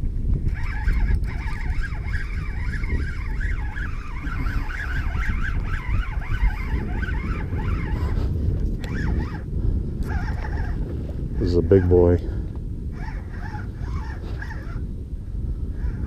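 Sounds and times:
wind on microphone: 0:00.0 - 0:16.0
fishing reel gears whining: 0:00.3 - 0:10.9, 0:12.9 - 0:14.9.

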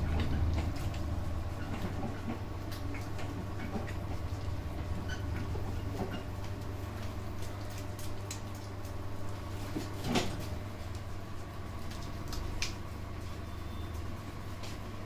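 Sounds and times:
steady low hum: 0:00.0 - 0:15.0
cling film crackling on skin: 0:06.4 - 0:13.3.

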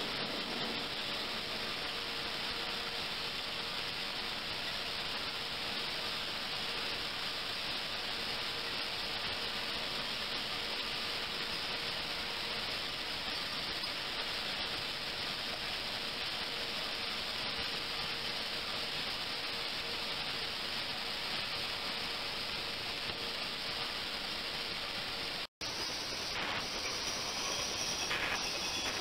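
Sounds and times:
faint steady tone: 0:25.6 - 0:29.0.

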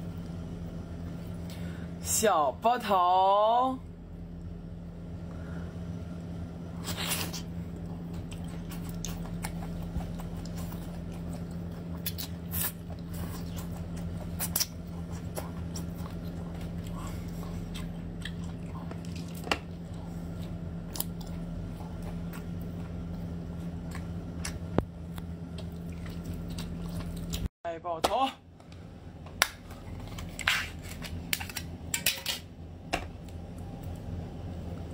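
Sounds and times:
steady low hum: 0:00.0 - 0:34.9
chewing and lip smacks: 0:06.9 - 0:27.5
wet slurping and sucking: 0:08.2 - 0:20.4.

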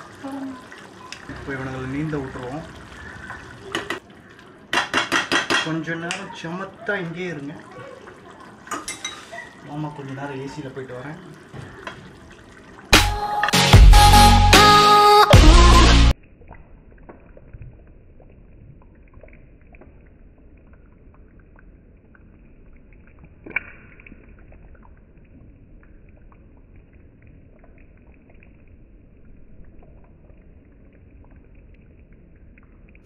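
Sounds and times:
curry simmering with bubbling: 0:00.0 - 0:13.0.

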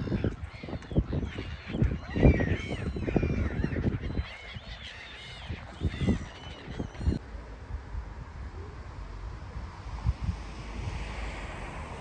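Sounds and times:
gulls calling: 0:00.0 - 0:07.2
wind buffeting microphone: 0:00.0 - 0:12.0.

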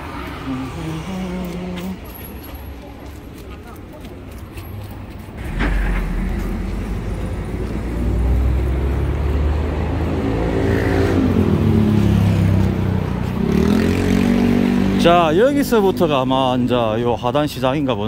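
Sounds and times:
engine revving: 0:05.4 - 0:16.2.

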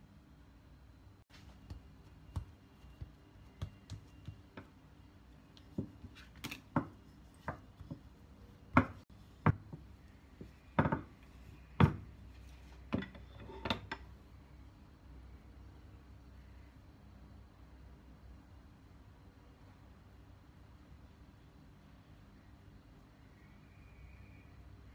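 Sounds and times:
dough thuds: 0:01.3 - 0:04.9, 0:05.5 - 0:11.2, 0:11.8 - 0:12.2
rolling pin tapping on dough: 0:01.6 - 0:04.8, 0:06.7 - 0:11.1.

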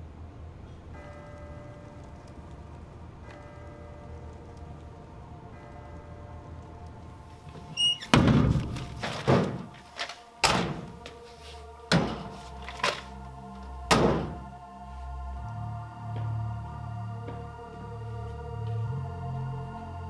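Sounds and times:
background music: 0:00.0 - 0:20.0
locker doors banging shut: 0:07.5 - 0:11.0, 0:11.9 - 0:13.1, 0:13.9 - 0:14.5.

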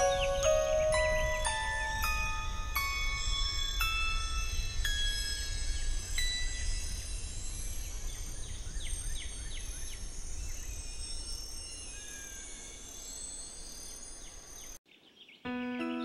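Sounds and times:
birds singing and chirping: 0:00.0 - 0:16.0.

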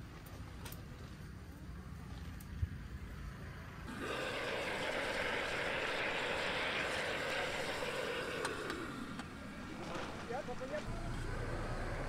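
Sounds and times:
water boiling with hissing steam: 0:03.9 - 0:10.8.

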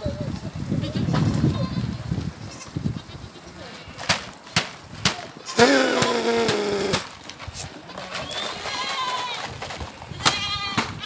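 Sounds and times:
goats bleating: 0:05.4 - 0:07.0.

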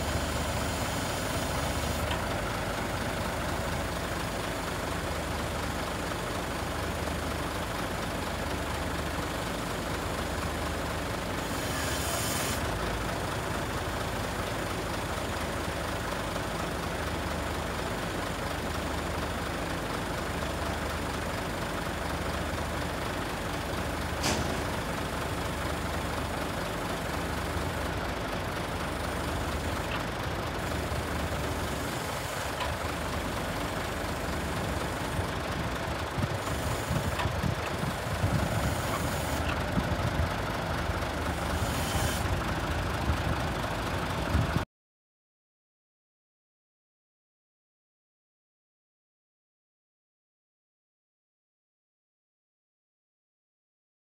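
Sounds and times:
diesel truck engine running: 0:00.0 - 0:44.6
sharp click: 0:24.2 - 0:24.7
pulsing hydraulic hum: 0:36.4 - 0:39.6, 0:41.3 - 0:42.4.

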